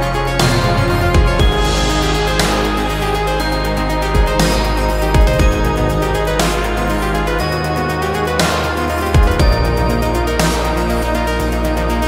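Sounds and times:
music with held chords: 0.0 - 12.0
cymbal-like crash: 0.3 - 7.3
deep bass drum hits: 0.4 - 6.4.

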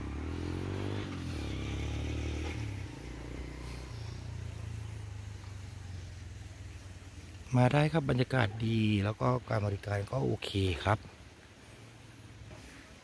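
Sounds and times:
vehicle engine revving and humming: 0.0 - 8.3.

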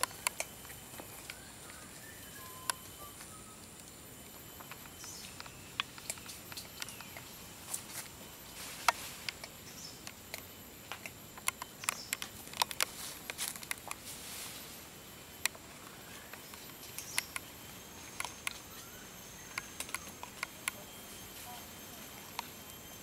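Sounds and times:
sharp ticks and crackles: 0.0 - 14.2, 15.2 - 23.0
faint high insect drone: 0.0 - 23.0
soft rustle: 12.8 - 14.9.

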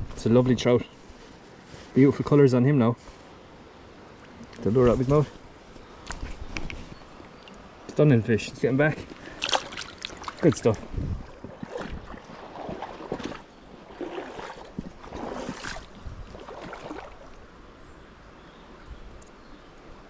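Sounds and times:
river water running and sloshing: 3.2 - 8.1, 8.8 - 18.8
splashes and knocks: 9.0 - 17.4.

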